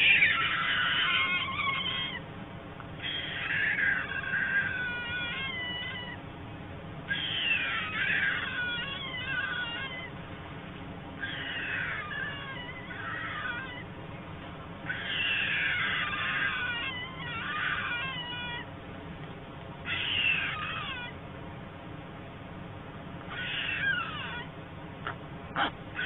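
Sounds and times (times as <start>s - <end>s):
young storks mewing begging calls: 0.0s - 2.2s, 3.0s - 6.2s, 7.1s - 10.2s, 11.2s - 13.9s, 14.8s - 18.7s, 19.8s - 21.2s, 23.3s - 26.0s.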